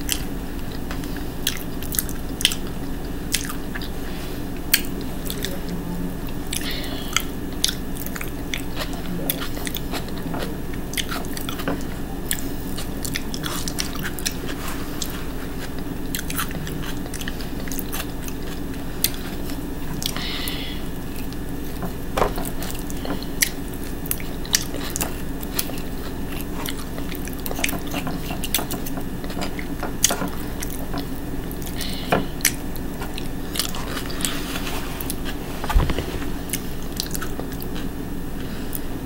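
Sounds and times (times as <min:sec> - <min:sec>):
chewing and mouth sounds: 0:00.0 - 0:39.0
steady low hum: 0:00.0 - 0:39.0.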